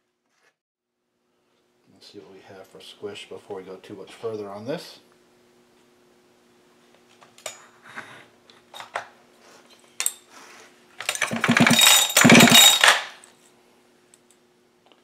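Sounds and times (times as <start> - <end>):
metal clicks and clatters: 11.0 - 13.2
fast metallic rattle: 11.1 - 13.1.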